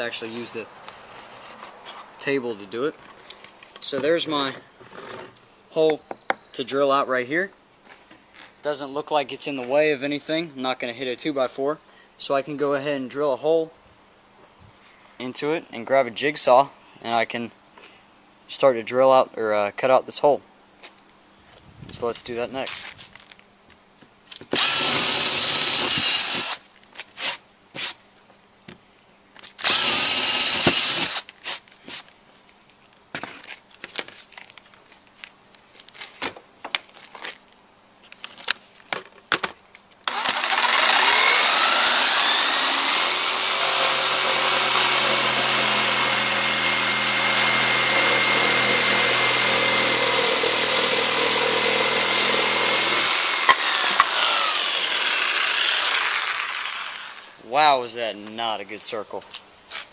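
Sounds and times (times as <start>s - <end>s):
cordless drill boring wood: 24.5s - 26.6s, 29.6s - 31.2s, 40.1s - 57.4s
jigsaw whine cutting board: 40.1s - 57.3s.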